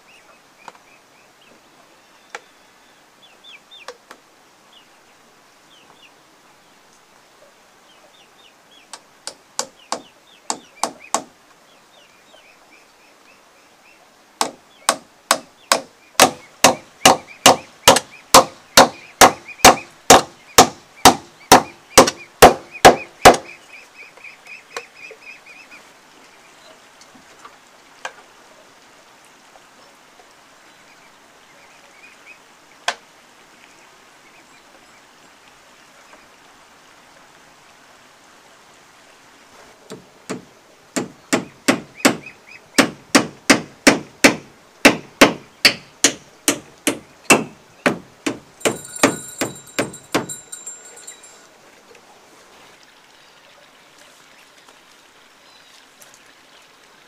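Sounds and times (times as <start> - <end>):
hammer blows on wooden post: 14.4 - 23.5, 42.8 - 51.4.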